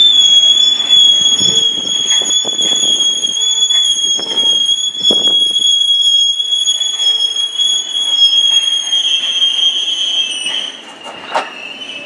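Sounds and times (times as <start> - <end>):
wagons knocking: 0.0 - 5.8
freight train rumbling: 0.0 - 12.0
train wheels squealing: 0.0 - 12.0.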